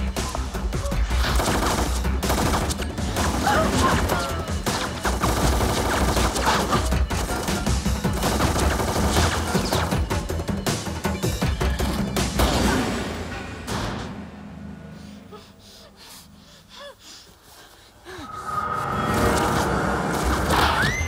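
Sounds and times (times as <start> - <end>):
low film score: 0.0 - 21.0
rapid rifle gunfire: 1.2 - 10.2.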